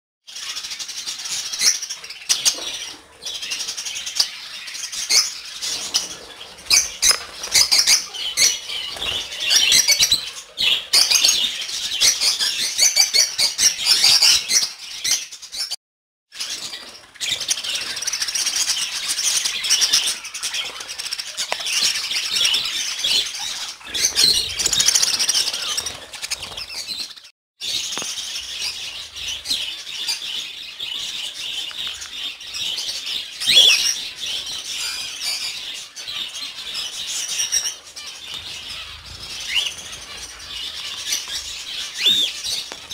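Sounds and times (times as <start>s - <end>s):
small birds chirping and chattering: 0.3s - 42.9s.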